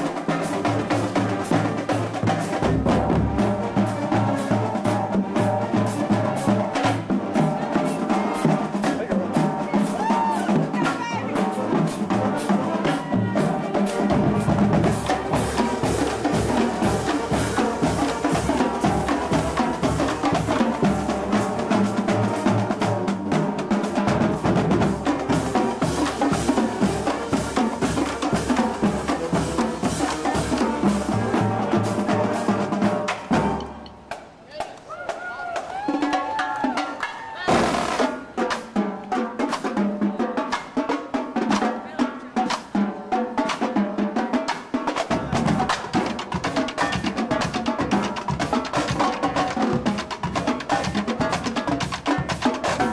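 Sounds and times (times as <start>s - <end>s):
marching bass drums: 0.0s - 52.9s
snare and tenor drum strokes: 0.0s - 52.9s.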